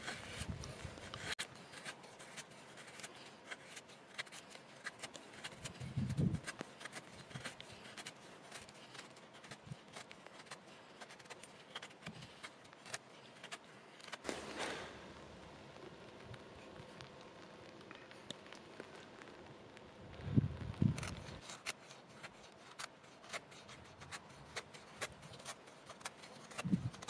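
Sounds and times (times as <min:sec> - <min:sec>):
knife scraping wood: 0:00.0 - 0:14.9, 0:20.9 - 0:27.0.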